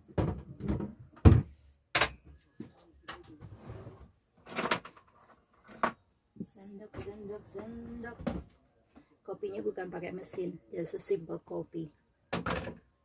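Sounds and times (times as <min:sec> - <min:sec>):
cupboard and kitchenware knocks: 0:00.1 - 0:02.2.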